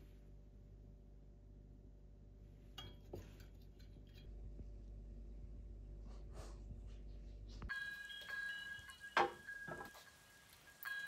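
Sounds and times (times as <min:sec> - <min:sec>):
low hum: 0:00.0 - 0:07.7.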